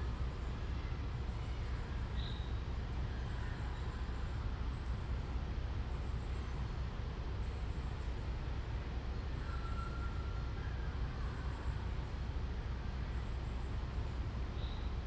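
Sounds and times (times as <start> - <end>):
low background rumble: 0.0 - 15.0
faint high chirp: 1.5 - 2.6, 9.4 - 11.8, 14.6 - 15.0.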